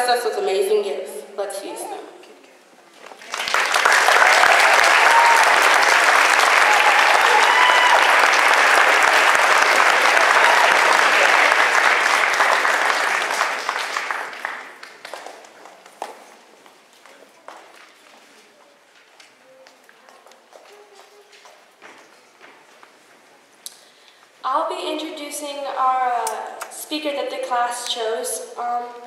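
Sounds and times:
audience applauding: 3.0s - 15.6s.

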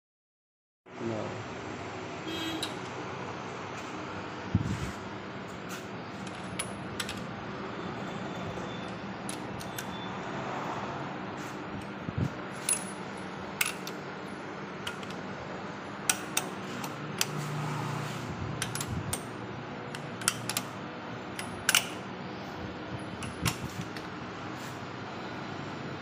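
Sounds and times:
steady background hum: 0.9s - 26.0s
socket clinking on engine metal: 12.6s - 14.0s, 18.6s - 19.3s, 19.9s - 20.8s, 21.4s - 22.0s.

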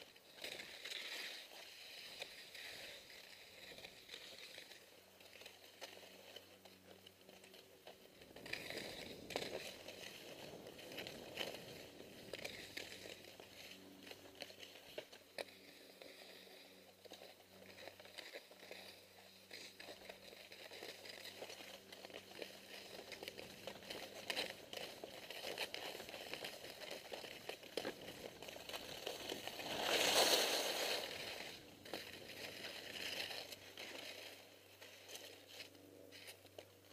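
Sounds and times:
skis scraping over snow: 0.0s - 36.9s
skis skidding hiss: 28.1s - 32.2s.

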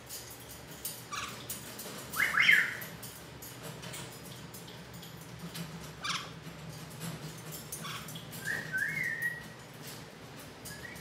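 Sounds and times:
parrot whistling: 2.2s - 2.8s, 8.4s - 9.5s, 10.7s - 11.0s.

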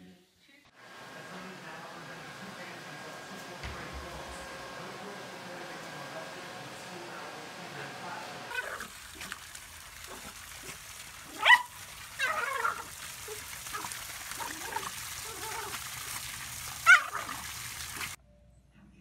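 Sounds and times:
water splashing from pool filter: 0.8s - 18.2s
small dog barking: 8.5s - 9.4s, 10.0s - 15.8s, 16.8s - 18.2s
dog whining and yipping: 16.8s - 17.4s.

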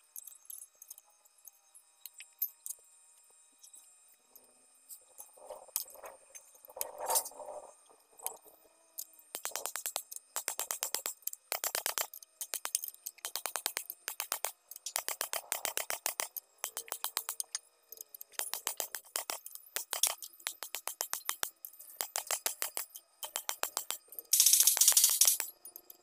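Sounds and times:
ratcheting wrench clicking: 9.4s - 25.5s.

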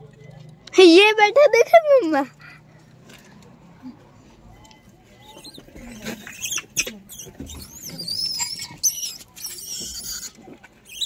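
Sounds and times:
monkeys squealing: 5.2s - 11.0s.

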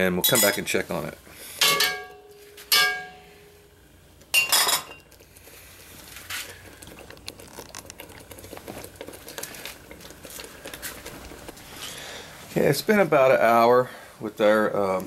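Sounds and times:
faint uneven crackle: 5.0s - 13.1s.

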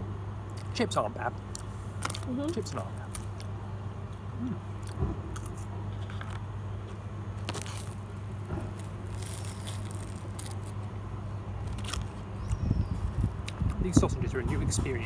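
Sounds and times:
steady low hum: 0.0s - 15.0s
food crackling and being chewed: 1.4s - 11.0s, 11.6s - 13.8s.

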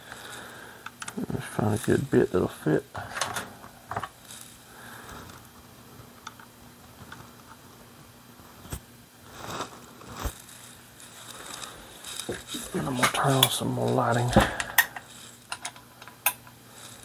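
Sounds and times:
soft rubbing and shuffling: 8.3s - 15.5s.

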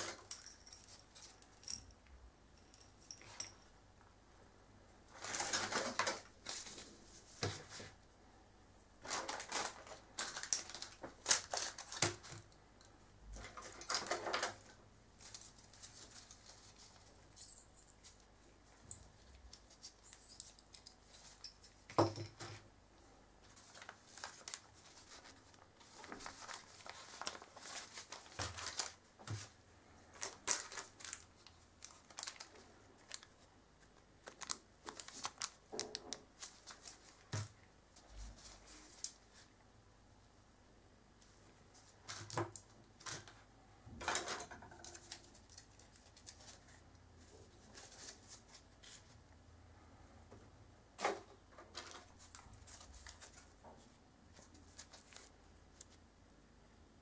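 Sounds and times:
wrappers rustling and crinkling: 5.1s - 8.0s, 9.0s - 12.5s, 13.4s - 18.2s, 23.4s - 39.5s, 44.9s - 49.2s, 51.7s - 56.0s.

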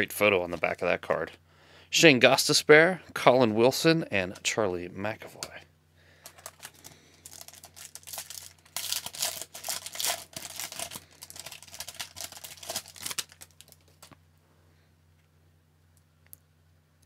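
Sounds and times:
foil wrapper crinkling and tearing: 6.3s - 14.2s.

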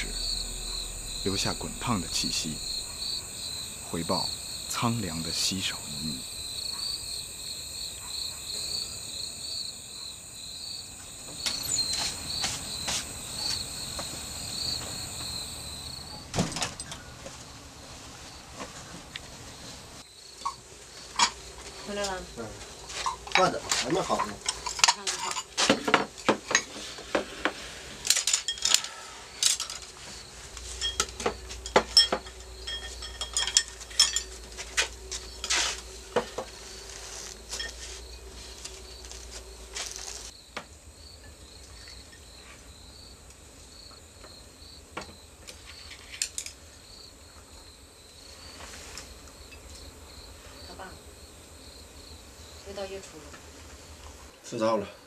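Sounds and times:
crickets chirping: 0.0s - 55.0s
dishes clinking and clattering: 30.7s - 34.5s.

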